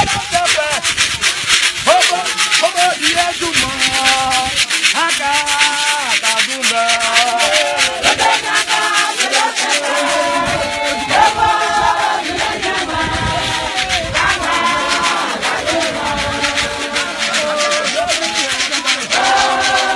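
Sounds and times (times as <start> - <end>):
rattling percussive strokes: 0.0 - 19.9
choir singing: 6.6 - 19.9.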